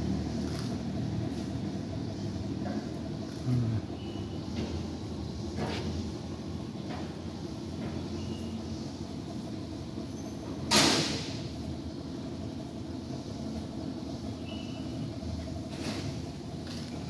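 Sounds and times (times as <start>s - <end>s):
faint hum: 0.0s - 10.7s
low mechanical rumble: 0.0s - 17.0s.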